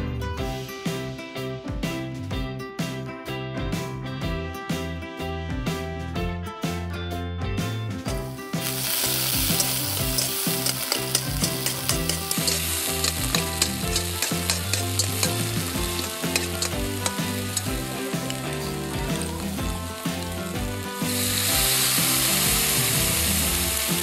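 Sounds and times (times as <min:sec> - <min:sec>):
background music: 0:00.0 - 0:24.0
hot oil sizzling in a pan: 0:08.2 - 0:24.0
fork ticking against pan: 0:09.5 - 0:17.7.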